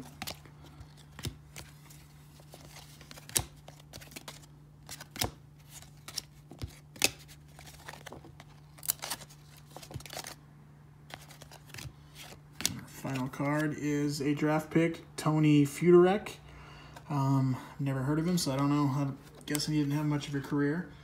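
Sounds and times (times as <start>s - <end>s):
cards clicking and snapping: 0.0s - 1.8s, 2.6s - 10.4s.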